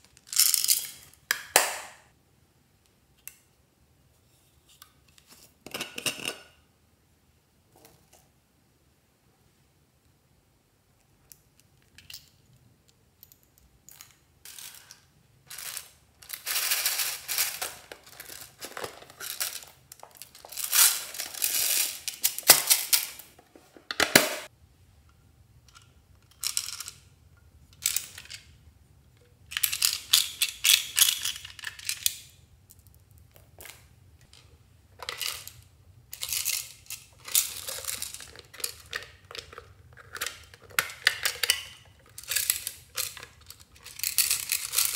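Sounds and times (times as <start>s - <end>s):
plastic toys clicking and rattling: 13.9s - 23.3s, 25.7s - 27.0s, 29.5s - 33.0s, 33.6s - 44.9s.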